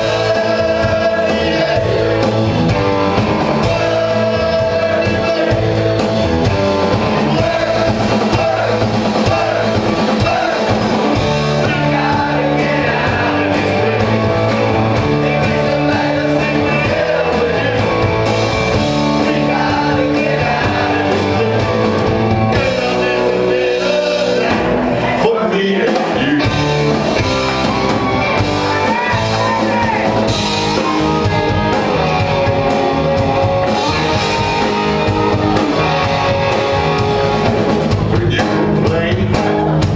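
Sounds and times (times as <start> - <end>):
man singing into a microphone: 0.0 - 2.2, 3.6 - 5.8, 11.6 - 14.4, 15.0 - 18.0, 19.2 - 21.8, 22.6 - 26.6, 38.1 - 39.9
drum kit: 0.0 - 39.9
electric guitars: 0.0 - 39.9.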